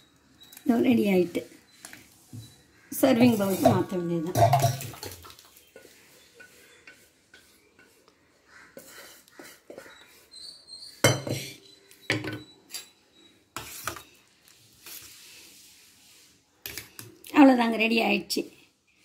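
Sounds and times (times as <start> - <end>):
wooden spatula scraping: 0.4 - 17.0
pot knocking against steel bowl: 3.6 - 5.3.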